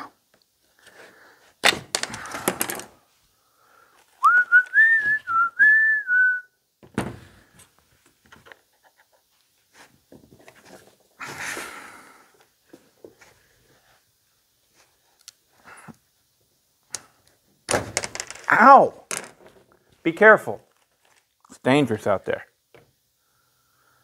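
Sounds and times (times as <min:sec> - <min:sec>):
person whistling a tune: 0:04.2 - 0:06.6.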